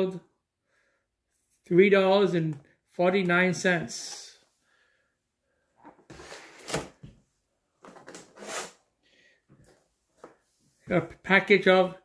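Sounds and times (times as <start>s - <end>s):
plastic containers rustling and knocking: 7.8s - 8.4s.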